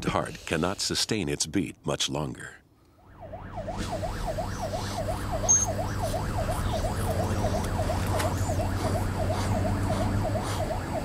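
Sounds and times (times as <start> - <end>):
ambulance siren yelping: 3.0 - 11.0
vehicle low drone: 3.1 - 11.0.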